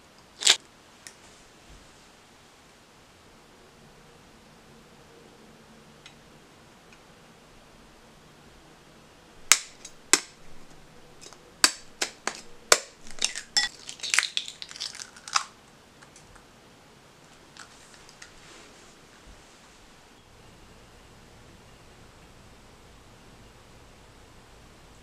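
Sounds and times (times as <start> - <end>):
eggshell crackling and crunching: 0.4 - 0.6, 9.4 - 16.4.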